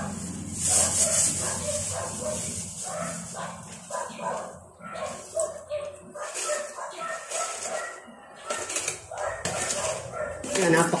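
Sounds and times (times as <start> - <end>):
dog yipping and whining: 3.9 - 10.5.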